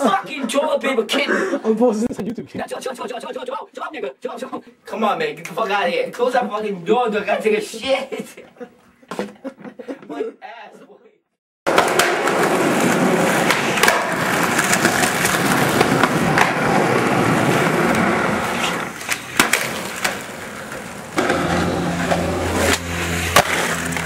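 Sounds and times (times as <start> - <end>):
skateboard popping and landing: 11.7 - 24.0
skateboard wheels rolling on concrete: 11.7 - 24.0.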